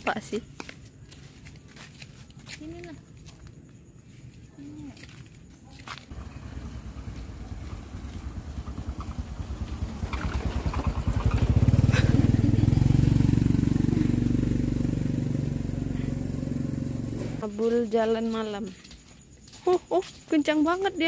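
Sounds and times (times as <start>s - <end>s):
vehicle engine running: 6.1s - 17.9s.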